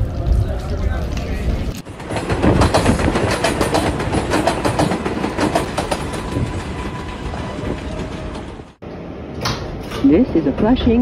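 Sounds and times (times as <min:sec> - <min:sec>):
train wheels clacking over rail joints: 0:01.8 - 0:08.7.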